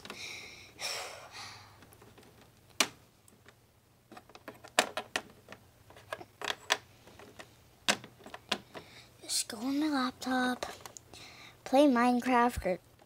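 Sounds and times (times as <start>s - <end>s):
plastic toys clacking on plastic floor: 4.1s - 8.9s.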